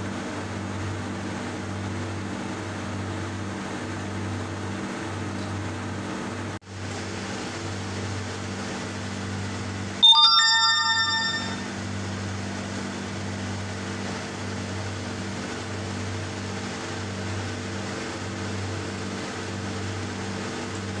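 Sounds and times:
bright bell-like chime: 10.0s - 11.7s.

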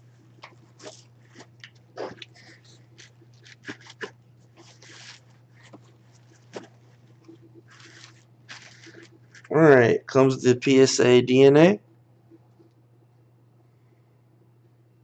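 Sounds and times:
steady low hum: 0.0s - 15.0s
jersey rustling and crinkling: 0.2s - 9.5s.

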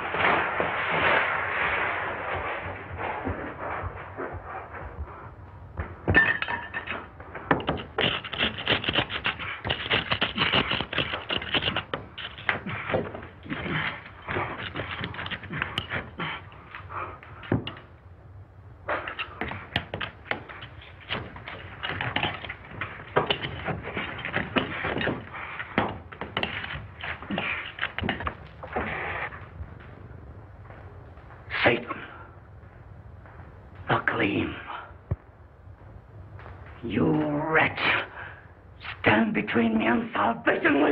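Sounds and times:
bricks knocking and scraping: 2.3s - 17.9s, 18.9s - 29.9s.

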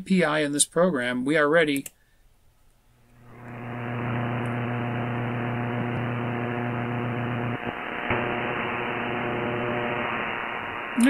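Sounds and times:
click: 1.7s - 2.0s, 4.4s - 4.6s
radio static hiss: 3.2s - 11.0s
strong hum: 3.2s - 11.0s.

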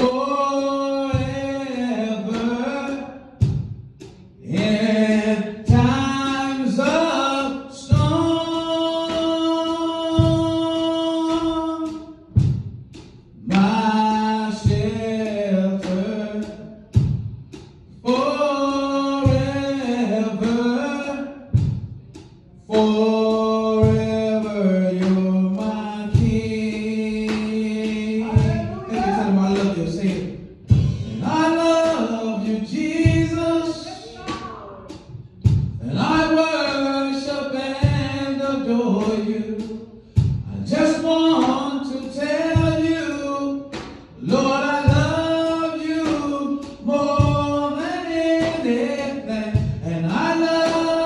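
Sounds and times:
low steady beat: 0.0s - 51.0s
gospel choir singing: 24.6s - 34.9s.

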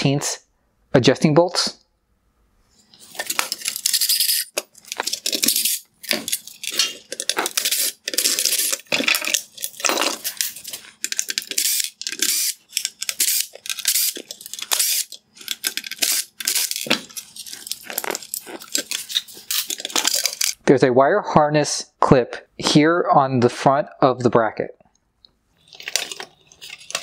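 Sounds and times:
screws scraping and grinding: 2.8s - 20.6s.

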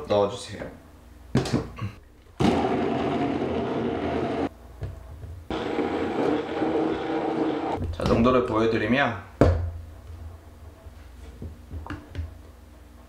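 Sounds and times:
electric blender running: 2.4s - 4.5s, 5.5s - 7.8s.

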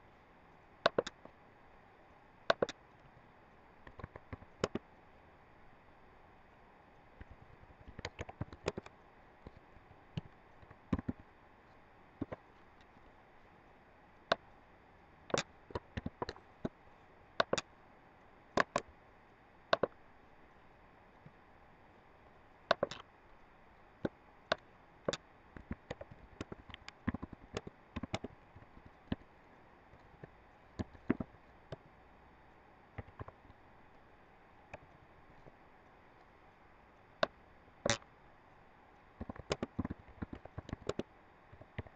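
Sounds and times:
faint steady hiss: 0.0s - 41.9s
mouse buttons clicking: 0.9s - 1.2s, 2.5s - 2.8s, 7.9s - 8.9s, 17.4s - 17.6s, 18.6s - 18.8s, 33.0s - 33.4s, 39.2s - 41.0s
keyboard keys clicking: 7.8s - 8.9s, 39.2s - 41.0s.

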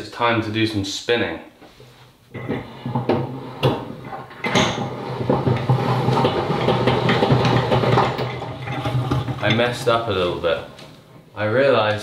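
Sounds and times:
crank knocks: 2.4s - 10.0s
metallic whirring and rattling: 3.6s - 11.2s.

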